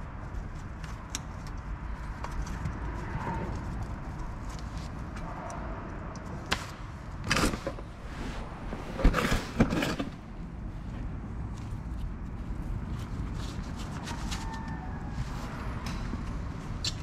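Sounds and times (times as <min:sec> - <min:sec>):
steady low hum: 0:00.0 - 0:13.8
scraping and knocking on brake caliper: 0:07.3 - 0:10.4.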